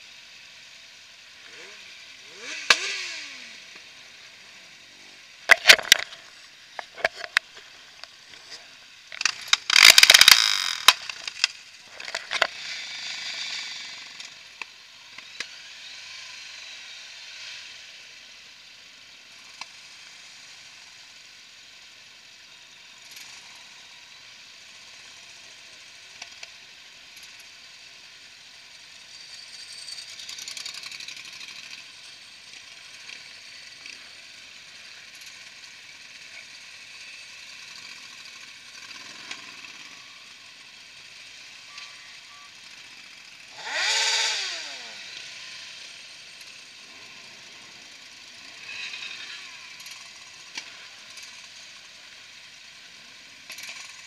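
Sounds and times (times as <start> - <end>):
motorcycle revving: 0.0 - 21.6, 22.8 - 54.0
muffled motorcycles running: 0.1 - 21.6, 22.2 - 54.0
sharp clicks: 5.5 - 6.2, 9.1 - 12.5.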